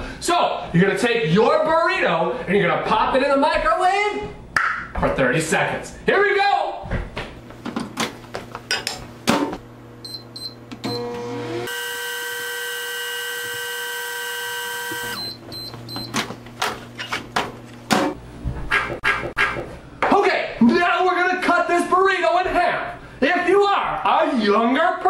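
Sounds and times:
microwave oven humming: 0:07.4 - 0:18.5.

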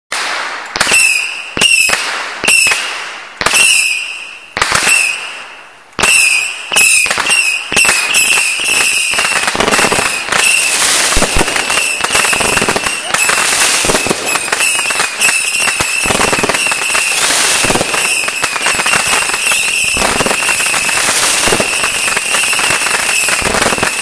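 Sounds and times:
fireworks crackling barrage: 0:00.1 - 0:24.0
fireworks shots whistling: 0:00.1 - 0:24.0.

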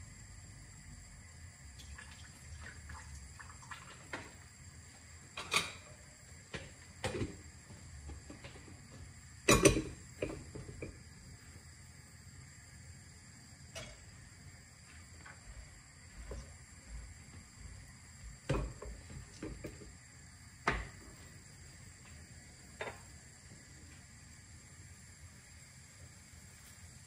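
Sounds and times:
kitchenware clattering: 0:05.4 - 0:05.9, 0:09.5 - 0:10.9.

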